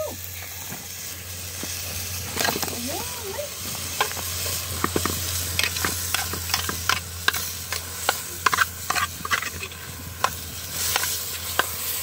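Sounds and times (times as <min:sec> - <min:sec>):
food sizzling in a pan: 0:00.0 - 0:12.0
utensil scraping a pan: 0:03.9 - 0:12.0.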